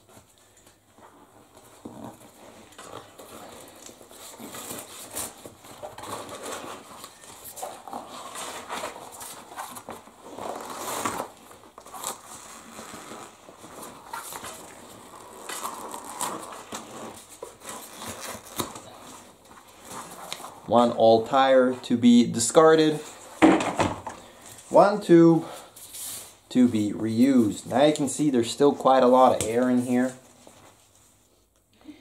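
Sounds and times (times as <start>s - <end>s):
rubber rubbing and scraping: 1.0s - 20.8s.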